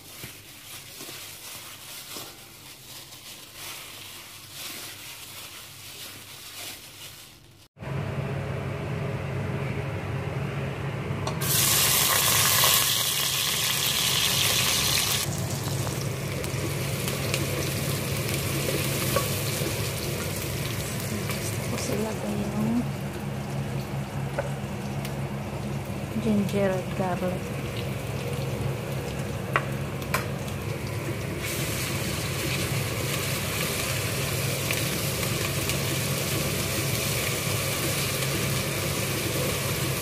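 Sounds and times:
wooden spoon stirring: 0:00.0 - 0:07.6
hands mixing meat in metal bowl: 0:00.0 - 0:07.7
onion sizzling in hot oil: 0:11.4 - 0:40.0.

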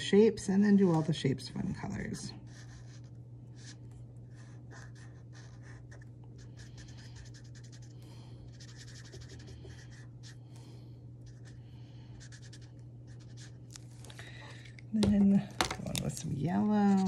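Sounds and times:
steady low hum: 0:00.0 - 0:17.0
marker scratching on paper: 0:02.5 - 0:07.9, 0:08.5 - 0:10.4, 0:11.3 - 0:11.6, 0:12.2 - 0:13.6, 0:16.7 - 0:17.0.

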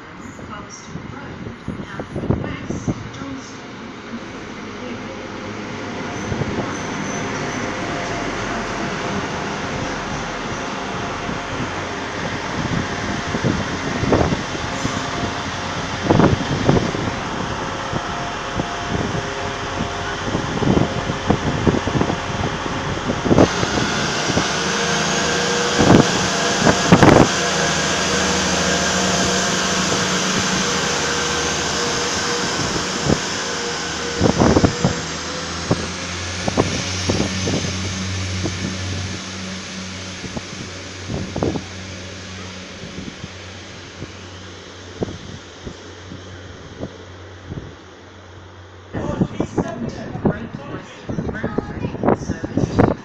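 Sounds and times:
diesel train running past: 0:00.0 - 0:53.0.

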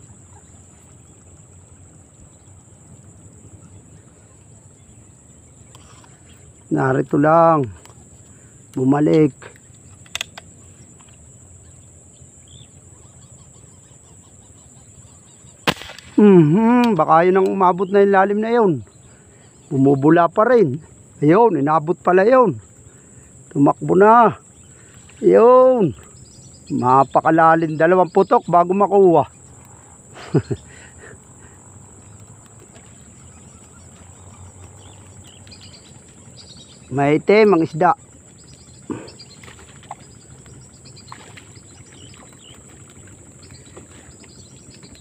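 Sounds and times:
insect chirring: 0:00.0 - 0:45.0
low outdoor noise: 0:00.0 - 0:45.0
airgun shot: 0:15.6 - 0:16.4.

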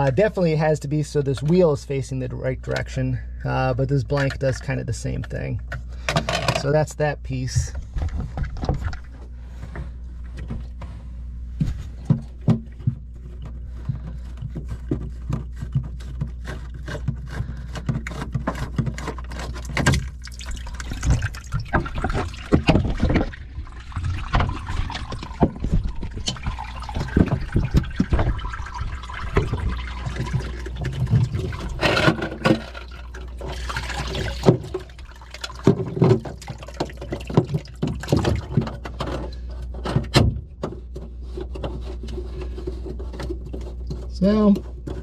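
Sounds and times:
handling clicks and knocks: 0:04.1 - 0:06.8, 0:11.6 - 0:45.0
water trickling and splashing: 0:19.3 - 0:39.4.

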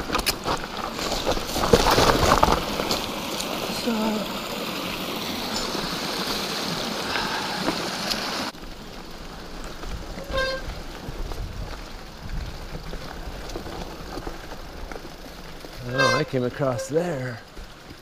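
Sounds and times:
stream water rushing and splashing: 0:00.0 - 0:11.1
bike rolling on dirt trail: 0:00.0 - 0:18.0
high-pitched squeak: 0:15.8 - 0:17.1.

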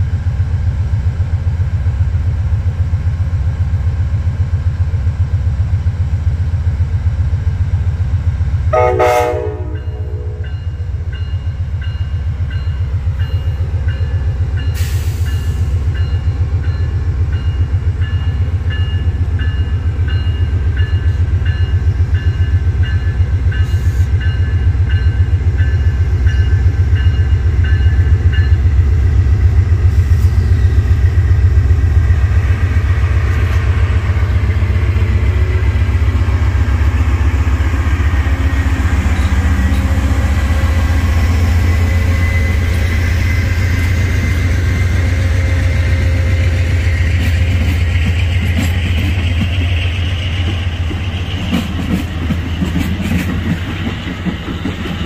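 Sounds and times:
diesel locomotive throbbing: 0:00.0 - 0:55.0
locomotive horn blast: 0:08.7 - 0:10.5
locomotive bell ringing: 0:08.8 - 0:28.8
hiss: 0:14.7 - 0:15.8.

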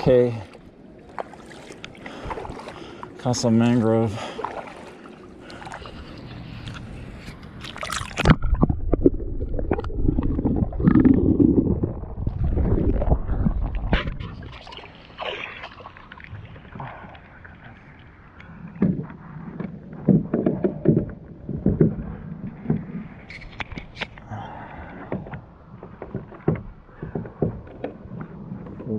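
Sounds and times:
paddle strokes splashing: 0:00.0 - 0:28.9
footsteps splashing in shallow water: 0:00.4 - 0:08.7, 0:13.2 - 0:17.3
paddle knocking plastic hull: 0:18.8 - 0:23.2, 0:24.9 - 0:28.9.

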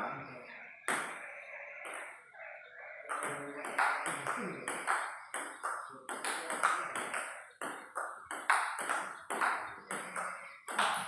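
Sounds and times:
table tennis ball hits: 0:00.9 - 0:01.2, 0:01.8 - 0:02.2, 0:03.1 - 0:11.0.

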